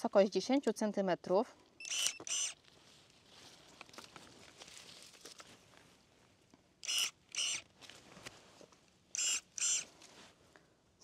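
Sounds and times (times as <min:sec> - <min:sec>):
pruning shears motor whines: 0:01.9 - 0:02.6, 0:06.8 - 0:07.6, 0:09.2 - 0:09.9
leaves rustling: 0:02.4 - 0:06.0.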